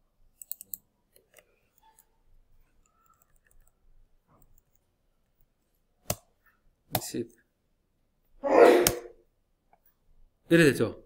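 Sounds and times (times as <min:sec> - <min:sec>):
faint small clicks: 0:00.4 - 0:04.9.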